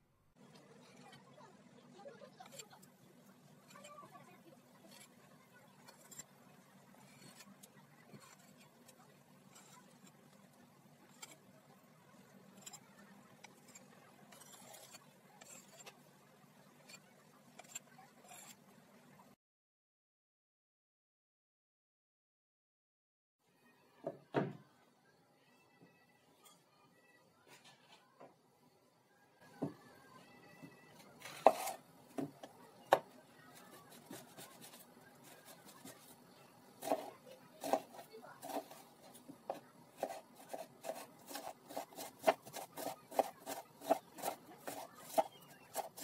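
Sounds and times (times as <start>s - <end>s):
knife cutting onions on wooden board: 7.0s - 10.2s, 12.5s - 16.0s, 31.0s - 46.0s.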